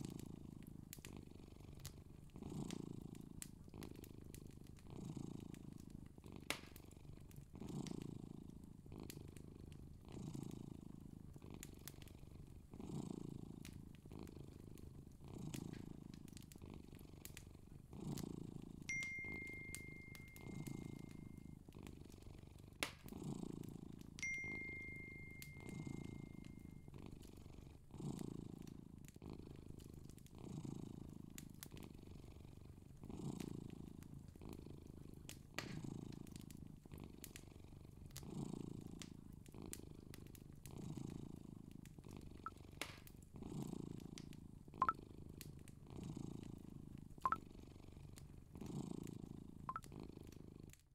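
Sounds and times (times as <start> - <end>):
faint clicks: 0.0 - 8.1, 13.6 - 23.2, 35.2 - 36.6, 41.8 - 43.2, 49.0 - 50.8
cat purring: 0.0 - 50.9.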